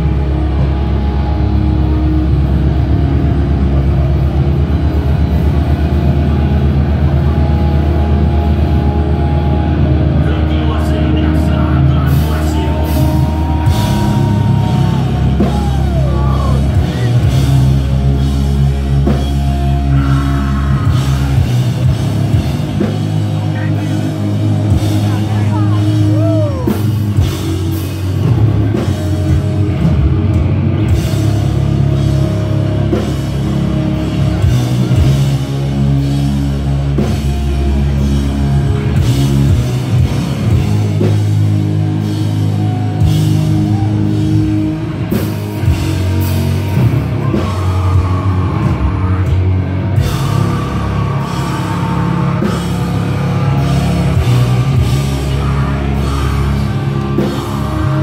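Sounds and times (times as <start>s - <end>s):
distorted guitars and bass: 0.0s - 58.0s
fast drum kit: 0.0s - 58.0s
person screaming into microphone: 13.0s - 17.3s, 19.9s - 21.5s, 25.2s - 26.8s.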